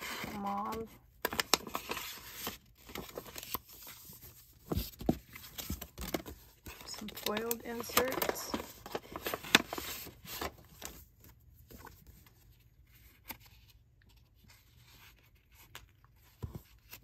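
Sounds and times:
paper rustling and tapping: 4.6 - 11.0.

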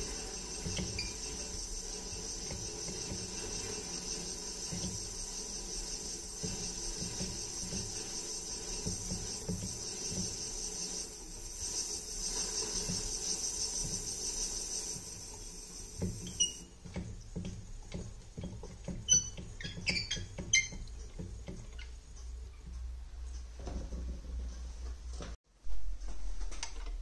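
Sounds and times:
lathe high hiss: 0.0 - 16.8
wooden handle squeaking: 0.0 - 22.8.

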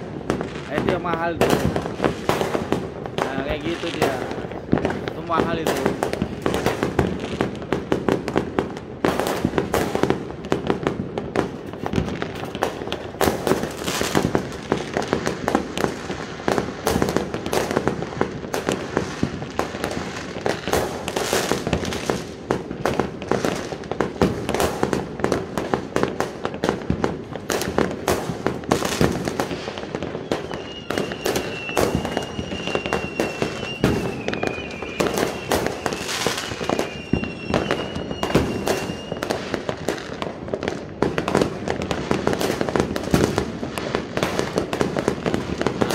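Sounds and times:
fireworks and firecrackers banging: 0.0 - 45.9
high steady whistling tone: 30.2 - 39.4.

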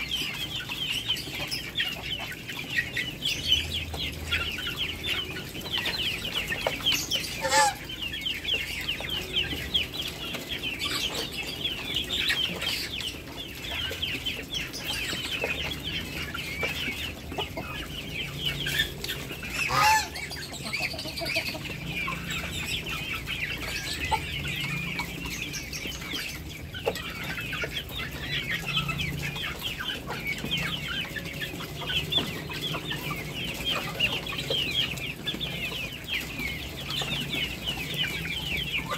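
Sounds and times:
poultry peeping and clucking: 0.0 - 38.9.

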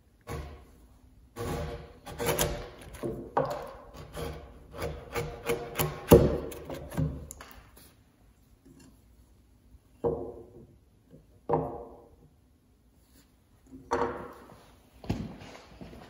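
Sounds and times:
chisel paring and scraping wood: 0.1 - 7.4.

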